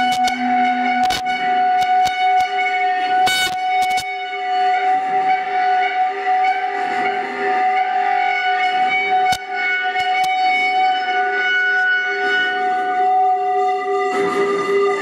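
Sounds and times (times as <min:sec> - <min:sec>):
bowed metal drone: 0:00.0 - 0:15.0.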